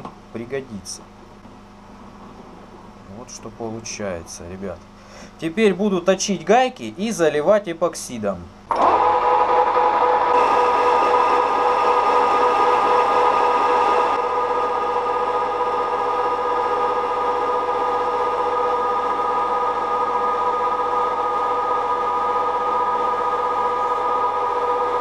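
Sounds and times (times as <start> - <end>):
metal lathe whine: 8.7 - 25.0.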